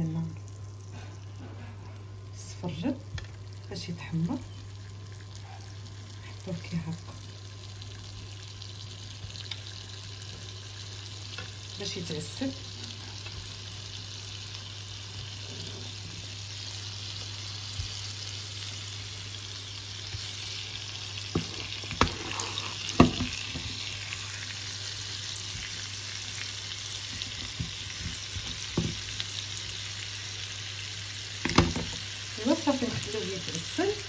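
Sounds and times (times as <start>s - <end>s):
fruit sizzling in a frying pan: 0.0s - 34.0s
knocks in pan: 22.9s - 23.8s, 31.4s - 32.0s.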